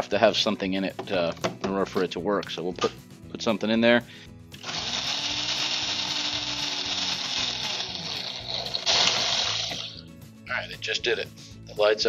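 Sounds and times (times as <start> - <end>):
blender motor whining: 4.6 - 10.0.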